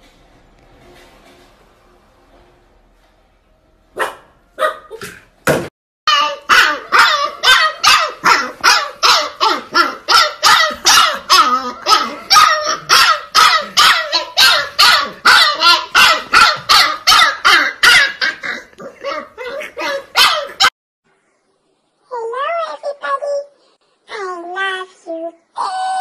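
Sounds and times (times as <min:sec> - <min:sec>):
puppy barking: 0:04.0 - 0:05.2, 0:06.1 - 0:20.7.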